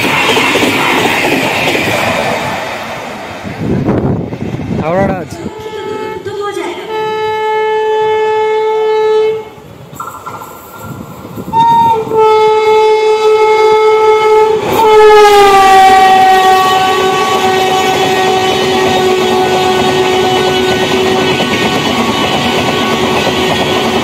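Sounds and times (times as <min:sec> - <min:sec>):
train passing: 0:00.0 - 0:24.0
locomotive horn blasts: 0:05.5 - 0:09.6, 0:11.5 - 0:24.0.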